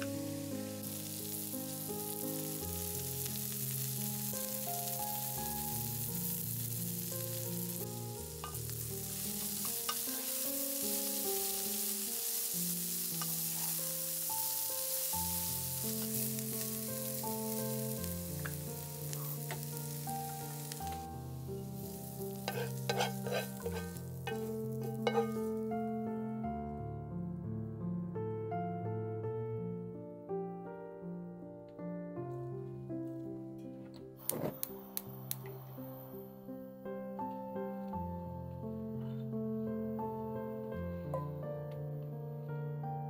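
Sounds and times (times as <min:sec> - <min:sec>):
vegetables sizzling in a frying pan: 0:00.0 - 0:25.9
soft background music: 0:00.0 - 0:43.0
spoon stirring in pan: 0:22.4 - 0:25.6
clinks and scrapes of plate: 0:22.5 - 0:25.5.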